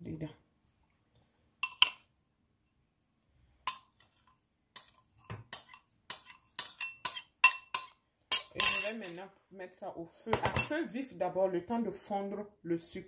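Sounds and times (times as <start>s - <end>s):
spoon clinking on glass bowl: 1.6s - 2.0s, 3.7s - 9.2s.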